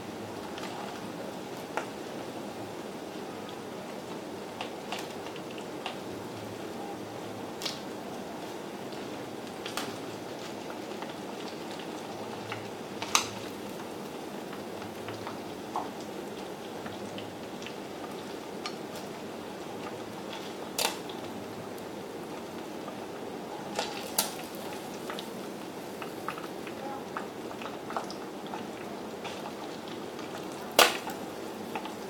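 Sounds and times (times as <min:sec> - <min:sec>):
chopsticks clicking against pan: 0:20.8 - 0:21.1
food sizzling in hot oil: 0:23.7 - 0:32.0.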